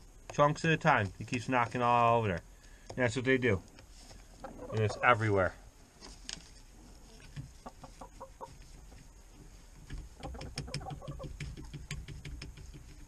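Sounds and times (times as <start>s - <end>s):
hens clucking: 3.0s - 5.6s, 6.7s - 11.8s.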